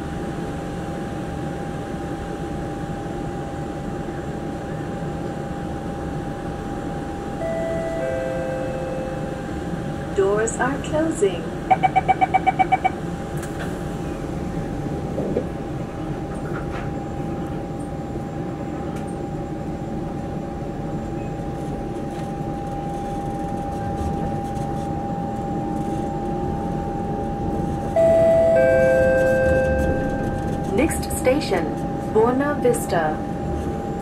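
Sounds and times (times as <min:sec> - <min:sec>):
train wheels rumbling on rail: 0:00.0 - 0:34.0
train motor whine: 0:06.4 - 0:17.9, 0:21.6 - 0:34.0
chime tone: 0:07.4 - 0:09.4, 0:28.0 - 0:30.5.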